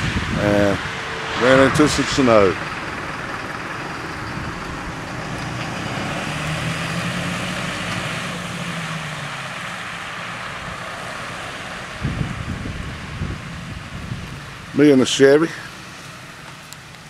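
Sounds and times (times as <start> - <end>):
low steady drone: 0.0 - 7.0
car engine hum: 0.0 - 17.0
tyre and road noise: 0.0 - 17.0.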